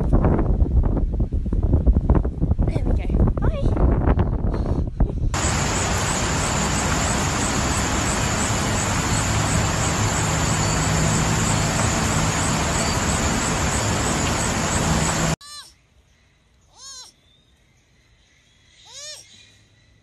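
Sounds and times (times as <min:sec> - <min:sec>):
steady loud rushing noise: 0:05.4 - 0:15.4.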